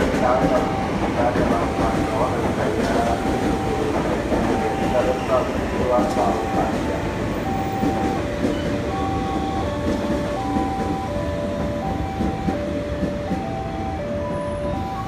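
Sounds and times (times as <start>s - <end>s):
train rumbling into station: 0.0s - 15.0s
electronic tone melody: 6.3s - 15.0s.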